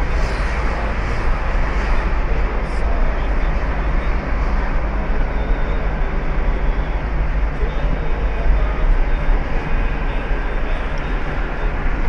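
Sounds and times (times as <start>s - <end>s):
car road and engine noise: 0.0s - 12.0s.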